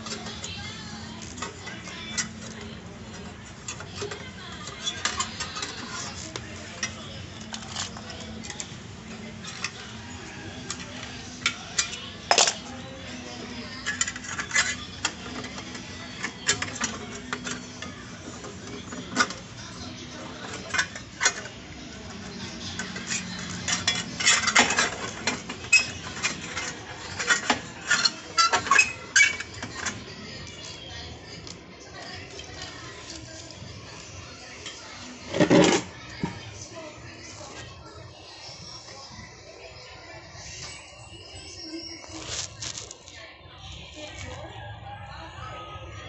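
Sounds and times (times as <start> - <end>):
metal tools clinking on metal: 13.8 - 19.4, 22.6 - 30.0.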